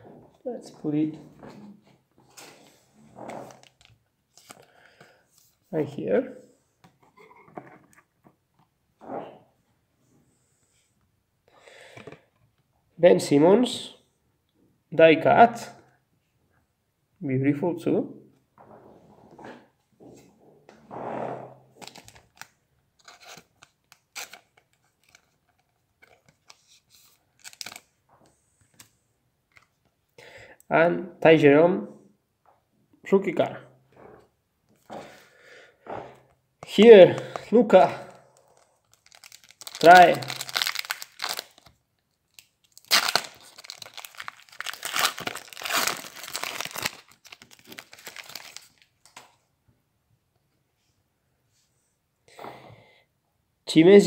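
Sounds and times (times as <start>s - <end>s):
plastic wrapping crinkling: 21.8s - 28.0s, 37.2s - 49.3s.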